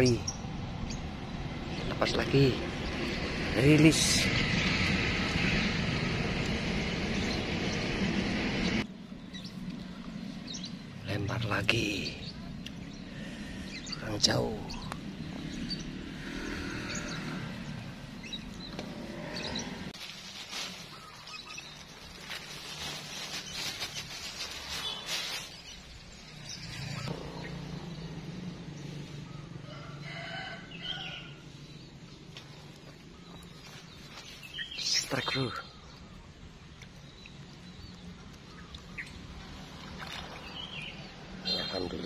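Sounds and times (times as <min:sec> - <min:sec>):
rooster crowing: 0:29.6 - 0:31.4.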